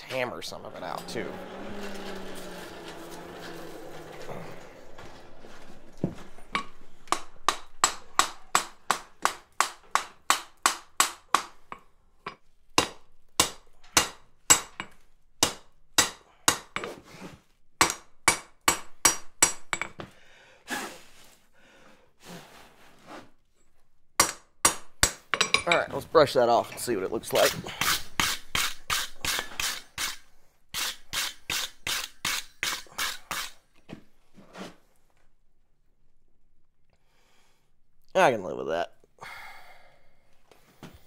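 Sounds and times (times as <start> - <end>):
hammer striking steel on anvil: 6.5 - 11.6, 12.8 - 16.8.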